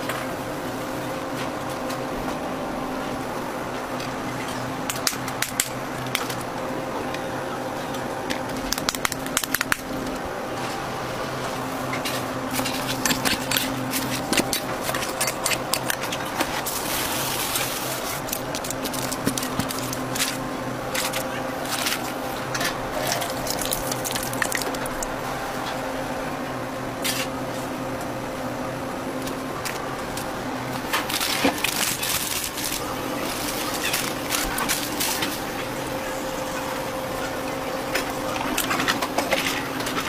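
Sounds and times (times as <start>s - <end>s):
electrical hum: 0.0s - 40.0s
paper crackling and rustling: 11.8s - 25.1s, 29.7s - 35.7s.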